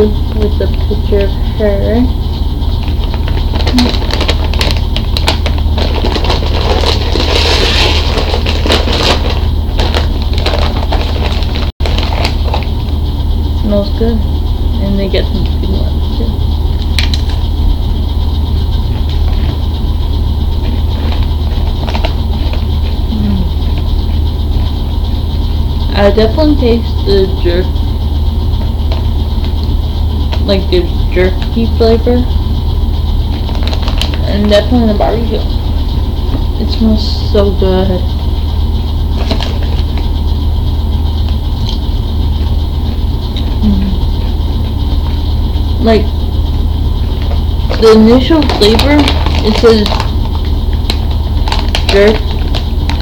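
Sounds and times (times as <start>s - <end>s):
loud low hum: 0.0s - 53.0s
potato chip crunching: 47.7s - 53.0s.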